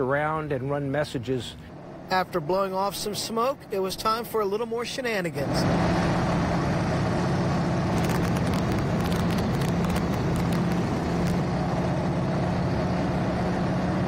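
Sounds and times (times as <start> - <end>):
aircraft engine droning: 0.0 - 14.0
crackles: 7.9 - 11.5.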